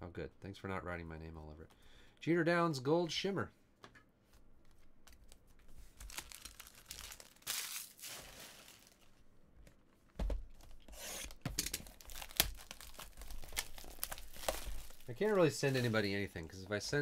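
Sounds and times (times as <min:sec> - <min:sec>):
card packaging tearing and crinkling: 0:06.0 - 0:09.0, 0:10.9 - 0:16.1.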